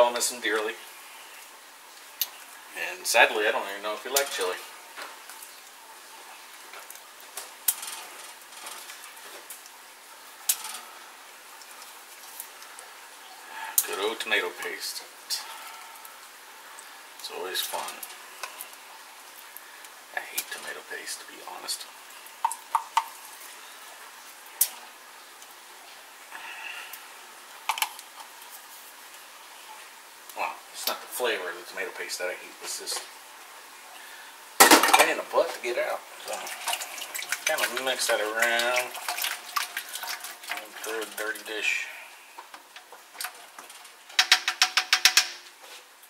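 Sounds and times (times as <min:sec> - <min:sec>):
tin can clinking on metal pot: 0:34.6 - 0:35.2, 0:43.2 - 0:45.5.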